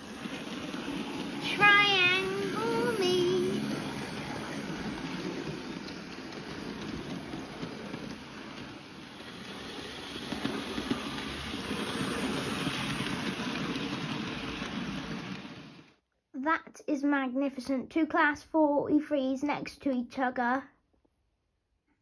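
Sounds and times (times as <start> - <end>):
model train motors whirring: 0.0 - 16.0.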